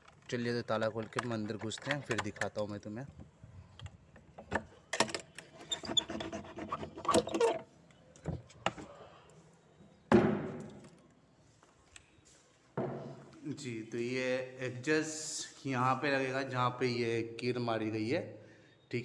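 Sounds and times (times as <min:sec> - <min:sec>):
metal bolt sliding: 0:04.6 - 0:07.6.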